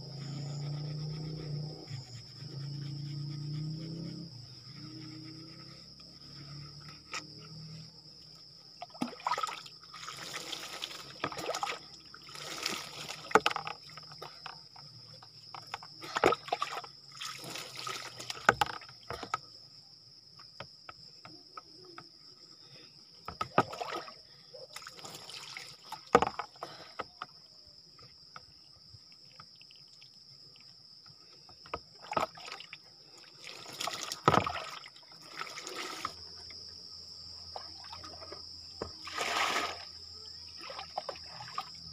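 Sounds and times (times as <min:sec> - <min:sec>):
water splashing over person: 0:09.0 - 0:13.4, 0:39.0 - 0:39.9.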